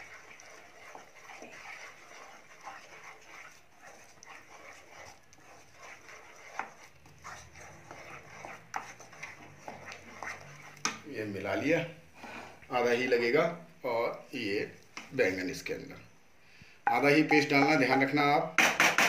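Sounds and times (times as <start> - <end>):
spatula scraping thick paste: 0.0 - 12.6
spatula knocking on pan: 16.9 - 18.0, 18.6 - 19.0.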